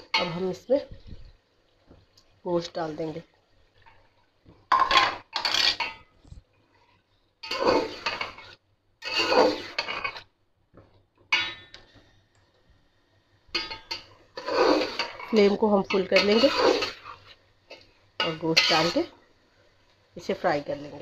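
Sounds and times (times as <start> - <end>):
metal spatula scraping a pot: 4.7 - 6.0, 6.8 - 10.3, 13.6 - 19.1
metal clinking on pot: 11.3 - 11.8, 13.5 - 19.0.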